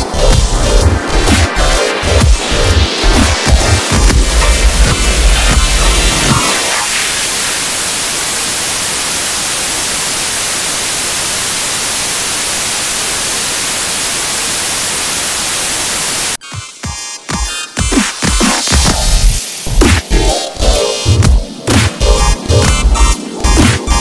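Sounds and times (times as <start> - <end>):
bass-heavy electronic music: 0.0 - 8.4, 16.4 - 24.0
static hiss: 0.0 - 16.4.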